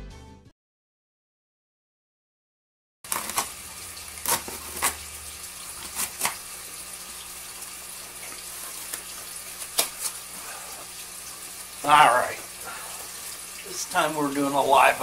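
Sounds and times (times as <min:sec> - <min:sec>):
aquarium water circulating: 0:03.0 - 0:15.0.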